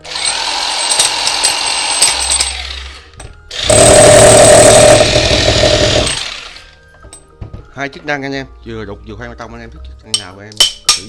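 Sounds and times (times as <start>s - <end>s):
rotary hammer drilling: 0.0s - 6.7s.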